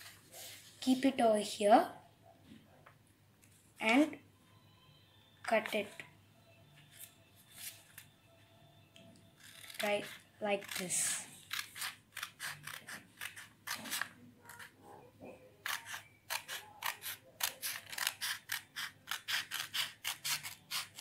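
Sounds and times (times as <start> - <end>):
scissors snipping paper: 9.4 - 14.7, 15.6 - 21.0.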